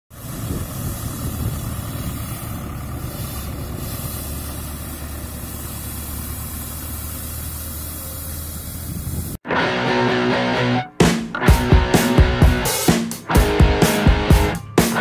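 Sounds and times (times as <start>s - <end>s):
rotary brush sweeping pavement: 0.1s - 9.4s
tractor diesel engine running: 0.1s - 9.4s.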